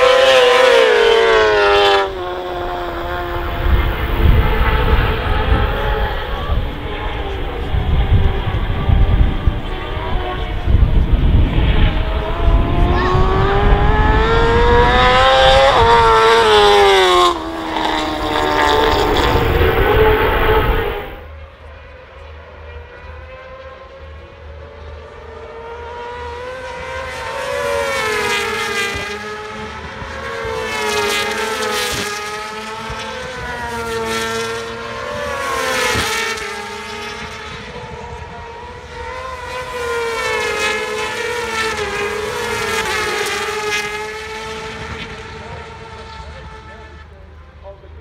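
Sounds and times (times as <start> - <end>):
racing motorcycles passing: 0.0 - 21.3.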